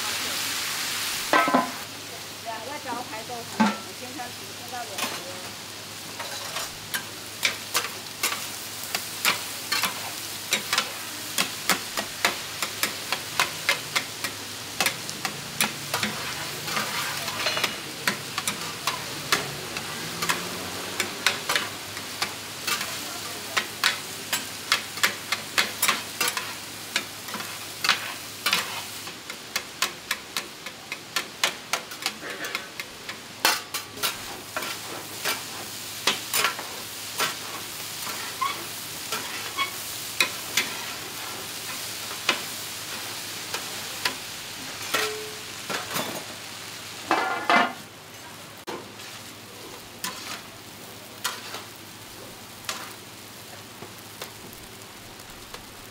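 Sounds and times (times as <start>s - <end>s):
tofu sizzling in a pan: 0.0s - 55.9s
metal spatula scraping a pan: 6.2s - 8.4s, 15.6s - 21.7s, 31.9s - 32.8s, 38.0s - 41.7s, 50.0s - 50.5s, 51.2s - 51.7s.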